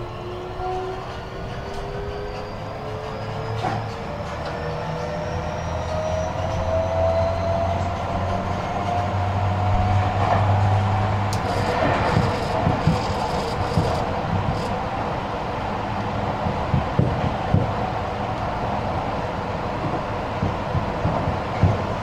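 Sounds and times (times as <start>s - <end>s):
electric train motor whine: 10.6s - 14.8s.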